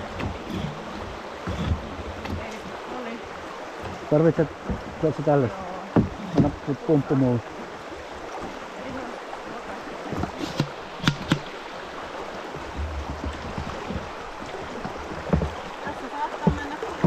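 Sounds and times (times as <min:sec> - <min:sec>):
river rapids rushing: 0:00.0 - 0:17.0
sharp knocks: 0:06.0 - 0:06.7, 0:10.2 - 0:11.6.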